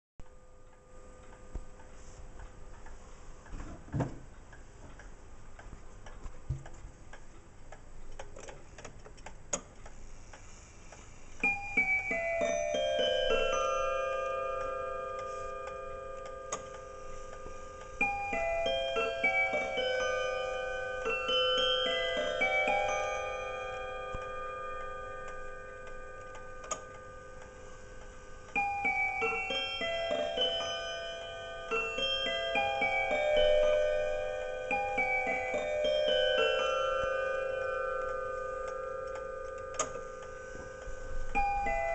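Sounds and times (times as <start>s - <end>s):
clock pendulum ticking: 0.2s - 3.6s, 4.2s - 41.9s.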